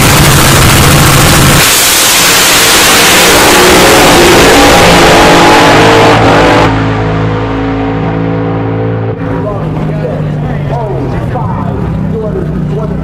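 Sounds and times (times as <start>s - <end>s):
dragster engine at full throttle: 0.0s - 13.0s.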